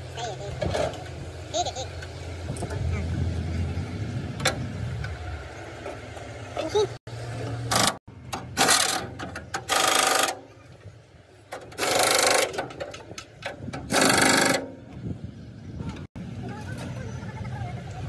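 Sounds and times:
power tool rattling: 7.7s - 10.4s, 11.5s - 14.7s.

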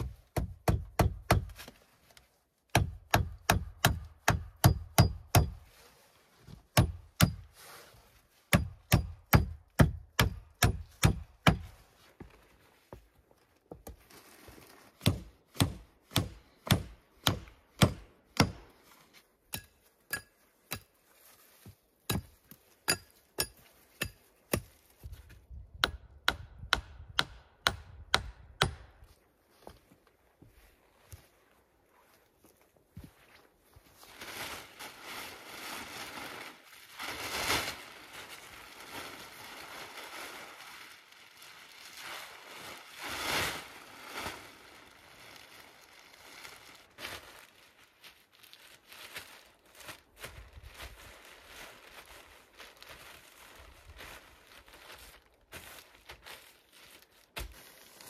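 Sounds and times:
hand tool striking wood: 0.0s - 1.7s, 2.7s - 5.6s, 6.7s - 7.4s, 8.5s - 11.7s, 15.0s - 18.7s, 19.5s - 20.9s, 22.1s - 24.7s, 25.8s - 29.0s.

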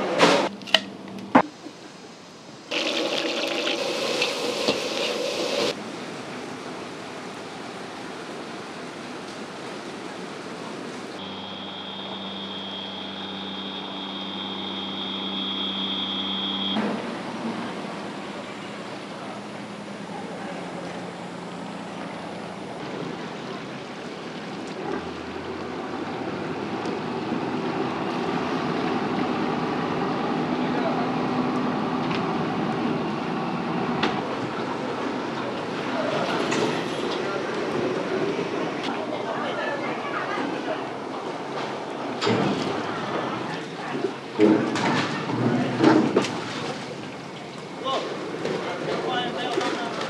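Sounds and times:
harbour ambience over calm water: 0.0s - 50.0s
wind: 0.0s - 50.0s
water washing: 2.6s - 11.2s
boat engine running: 11.2s - 38.8s.

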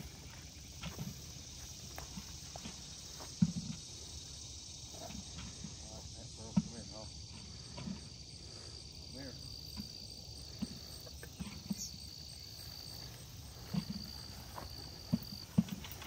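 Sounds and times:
footsteps on plowed ground: 0.0s - 3.9s, 10.4s - 16.0s
high insect drone: 0.0s - 16.0s.

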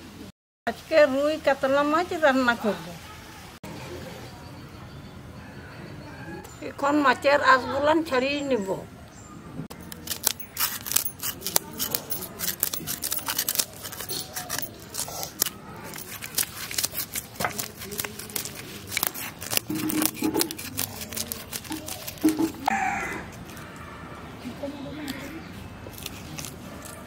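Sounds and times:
knife scraping fish scales: 9.7s - 23.8s, 25.1s - 27.0s.

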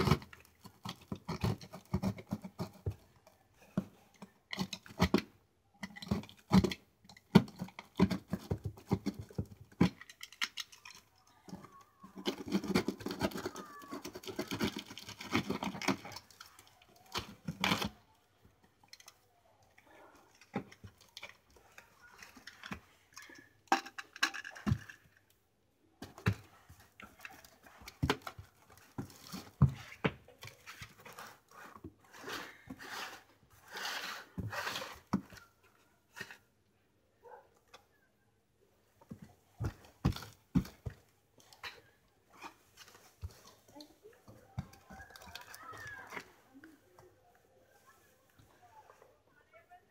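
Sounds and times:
knife cutting cardboard and tape: 0.0s - 18.1s, 26.0s - 36.4s.

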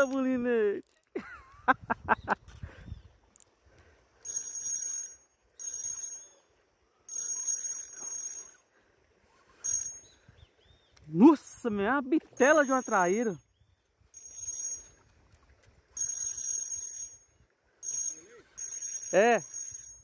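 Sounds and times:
fishing reel drag buzzing: 4.2s - 6.4s, 7.1s - 8.7s, 9.6s - 10.1s, 14.1s - 15.0s, 15.9s - 20.0s.

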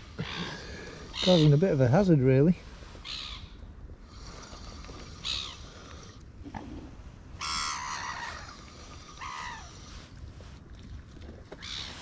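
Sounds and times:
gulls calling: 0.0s - 3.7s, 7.4s - 10.0s.

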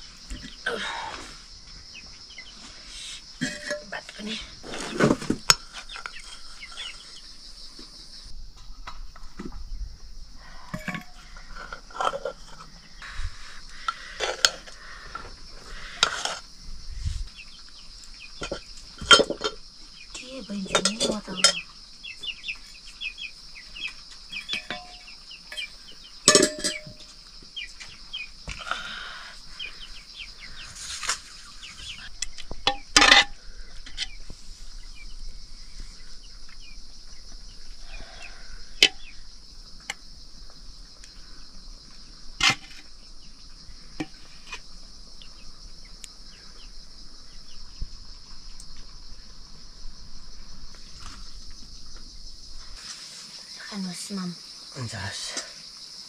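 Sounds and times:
crickets chirring: 0.0s - 56.0s
metal dishes and spoons clinking: 3.4s - 4.0s, 10.7s - 12.7s, 18.4s - 19.6s, 20.7s - 21.6s, 24.3s - 27.1s, 32.7s - 34.1s.

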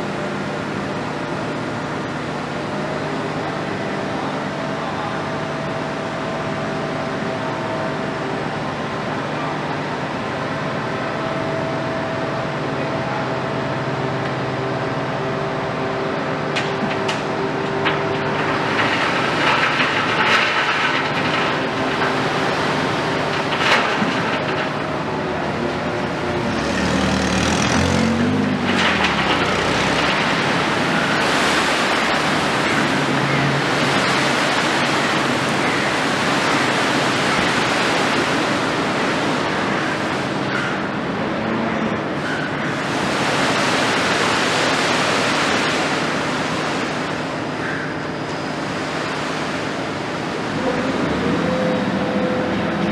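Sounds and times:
excavator diesel engine running: 0.0s - 52.9s
concrete debris crunching and clattering: 16.6s - 25.0s, 28.4s - 38.5s.

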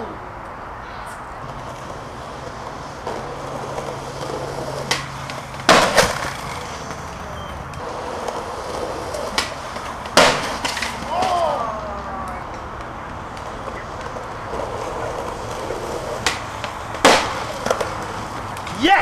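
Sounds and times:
skateboard wheels rolling on concrete: 0.0s - 19.0s
skateboard clacks: 1.4s - 19.0s
skateboard pop: 3.1s - 7.0s, 9.1s - 11.7s, 12.3s - 18.8s.

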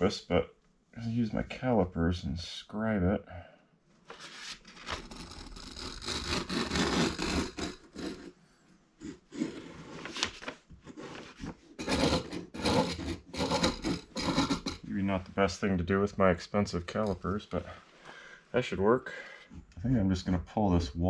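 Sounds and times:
metal tip scraping wooden boards: 5.0s - 8.4s, 10.9s - 14.9s.

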